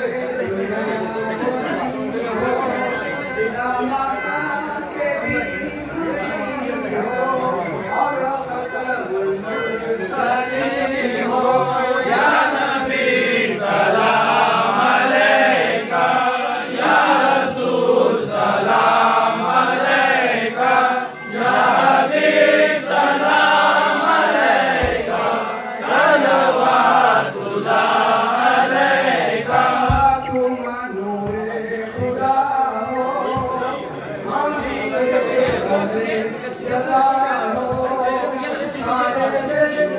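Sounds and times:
men chanting in unison: 9.5 - 39.9.

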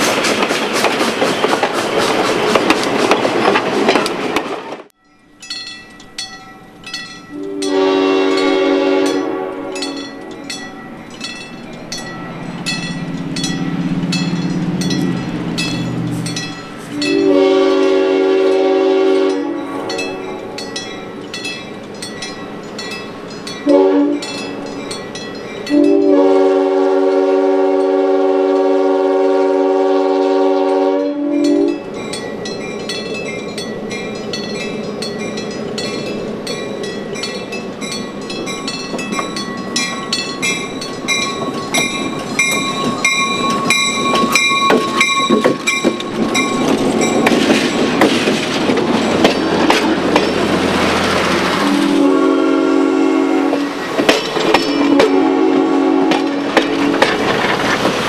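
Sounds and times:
train wheels clattering and squealing: 0.0 - 17.6, 18.3 - 26.2, 31.4 - 51.8, 53.4 - 55.4, 56.0 - 58.0
crossing bell ringing: 4.9 - 57.5
train horn blasts: 7.3 - 10.4, 16.9 - 20.6, 23.6 - 24.3, 25.7 - 31.8, 51.5 - 53.8, 54.8 - 57.1.

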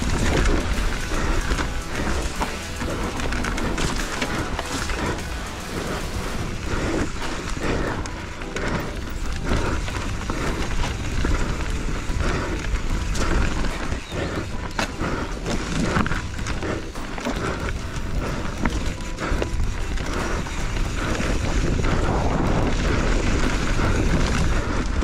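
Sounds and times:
bike rattling and knocking: 0.0 - 25.0
wind on microphone: 0.0 - 25.0.

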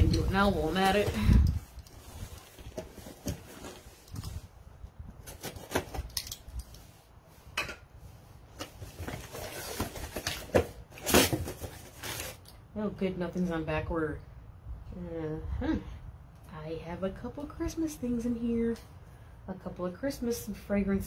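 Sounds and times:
box and paper rustling: 0.0 - 4.5, 5.2 - 6.2, 8.6 - 12.5.

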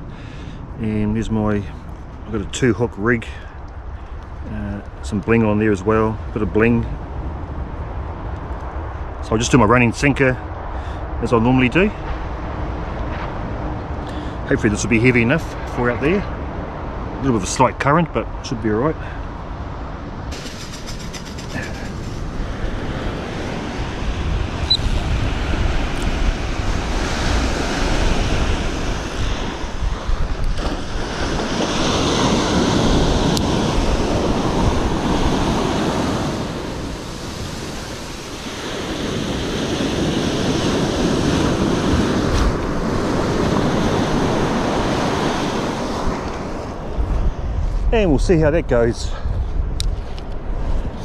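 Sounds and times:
wind rumbling on microphone: 0.0 - 51.0
surf breaking on a beach: 20.3 - 48.2.

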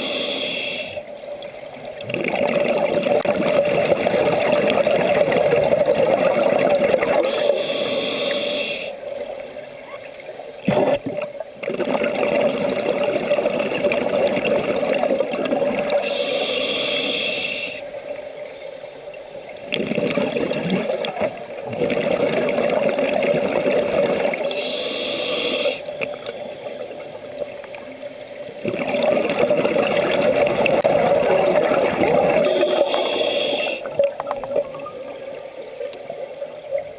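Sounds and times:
regulator inhale hiss: 0.0 - 1.2, 7.2 - 9.1, 15.9 - 19.5, 24.4 - 27.0, 32.4 - 34.0
exhaled bubbles gurgling: 0.0 - 18.4, 19.4 - 36.9.

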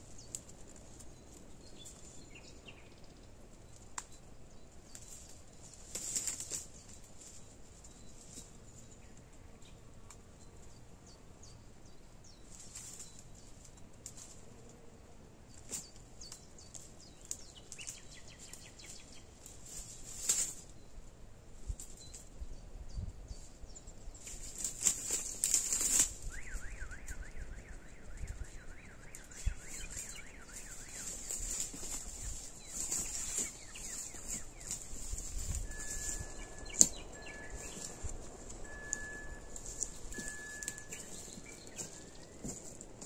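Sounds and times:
dry twigs crackling and snapping: 0.0 - 2.8, 3.5 - 10.2, 12.5 - 14.5, 15.5 - 20.8, 24.2 - 43.0
bird calling: 24.2 - 43.0.

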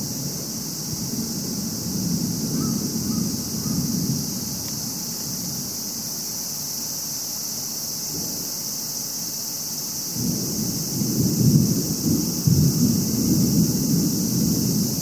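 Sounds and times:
thunder rumbling: 0.0 - 5.8, 10.2 - 15.0
steady high hiss: 0.0 - 15.0.

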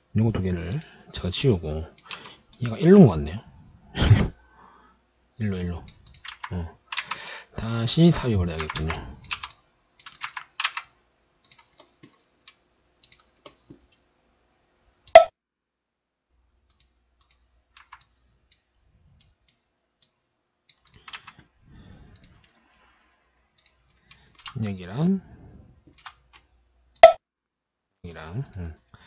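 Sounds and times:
keyboard keystrokes and mouse clicks: 5.8 - 7.2, 8.6 - 14.0, 16.6 - 21.5, 23.5 - 24.6, 25.9 - 27.2.

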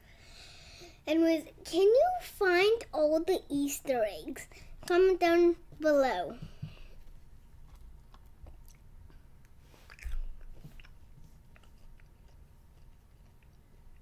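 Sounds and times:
child chewing candy: 7.6 - 14.0.

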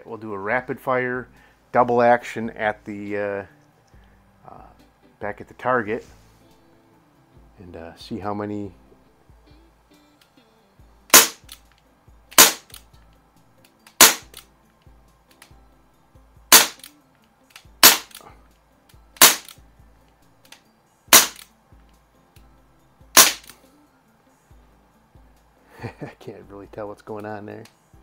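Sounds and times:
air pistol pops: 11.1 - 11.7, 12.3 - 12.9, 13.9 - 14.5, 16.5 - 18.3, 19.2 - 19.6, 20.5 - 21.5, 23.2 - 23.6.

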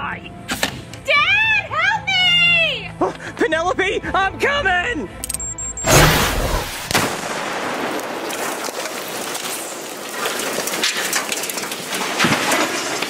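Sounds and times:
sharp bang: 5.8 - 7.2
debris crackling and pattering: 6.9 - 13.0.

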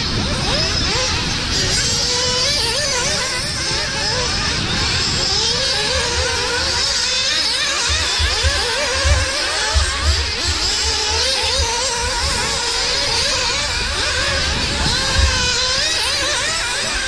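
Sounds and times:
rc car engines screaming: 0.0 - 17.0.

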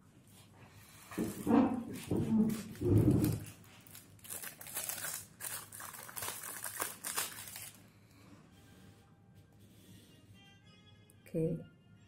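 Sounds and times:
packaging crinkling and rustling: 0.8 - 7.9.

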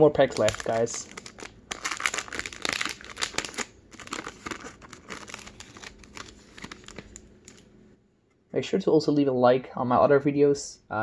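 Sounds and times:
foil wrapper tearing and crinkling: 0.3 - 7.6.

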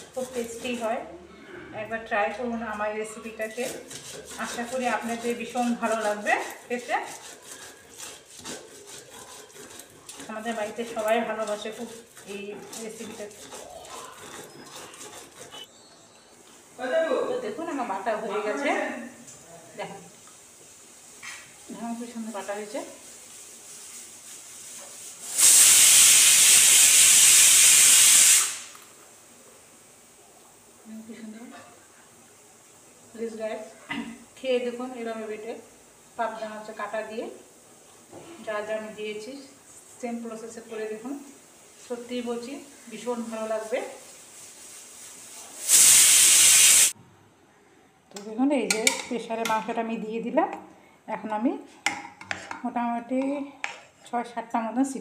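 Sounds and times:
loud steady hiss: 20.1 - 30.8, 38.7 - 47.0.

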